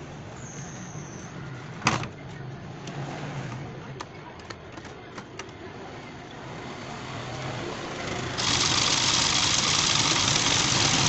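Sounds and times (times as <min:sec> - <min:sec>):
toy electric motor running: 0:08.4 - 0:11.0.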